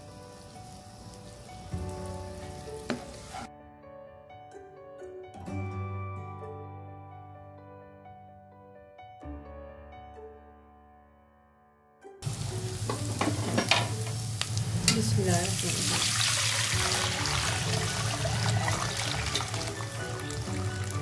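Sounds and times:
garlic sizzling in butter: 0:00.0 - 0:03.5, 0:12.2 - 0:21.0
spatula scraping a pan: 0:12.9 - 0:14.1.

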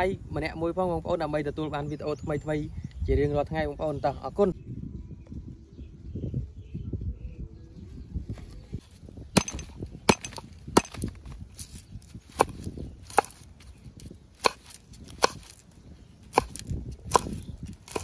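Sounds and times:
soft handling noise: 0:07.8 - 0:12.7
cleaver chopping on wooden board: 0:09.4 - 0:11.1, 0:12.3 - 0:13.4, 0:14.4 - 0:15.6, 0:16.3 - 0:18.0.

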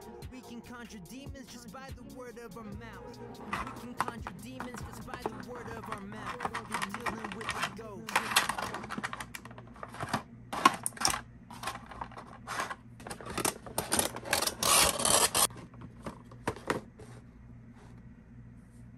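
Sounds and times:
plastic packaging crackling: 0:03.4 - 0:16.5.

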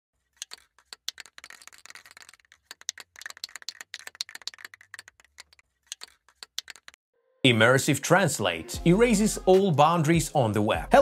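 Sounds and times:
rapid keyboard typing: 0:00.4 - 0:07.0.

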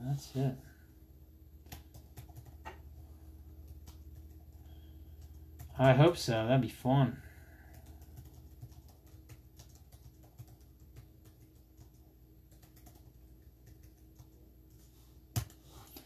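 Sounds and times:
low room hum: 0:00.0 - 0:16.0
keyboard typing: 0:01.6 - 0:02.9, 0:03.5 - 0:06.0, 0:07.6 - 0:16.0.

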